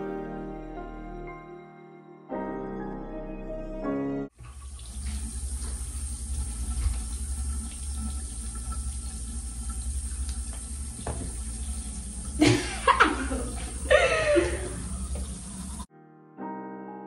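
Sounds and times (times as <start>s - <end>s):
tap water running into sink: 4.4s - 15.9s.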